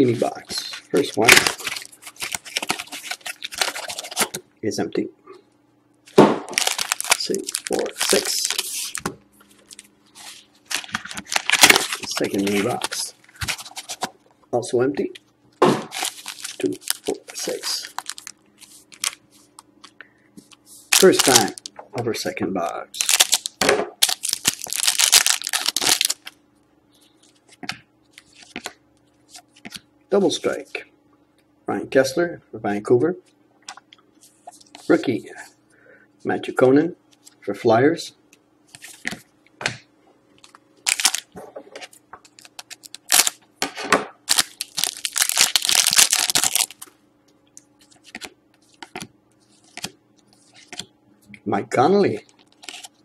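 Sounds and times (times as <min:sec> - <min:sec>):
foil wrapper crinkling and tearing: 0:00.2 - 0:04.4, 0:06.5 - 0:09.0, 0:09.6 - 0:14.1, 0:15.9 - 0:19.2, 0:20.9 - 0:21.7, 0:23.0 - 0:26.4, 0:40.8 - 0:41.3, 0:42.2 - 0:43.4, 0:44.3 - 0:46.9, 0:52.3 - 0:53.0.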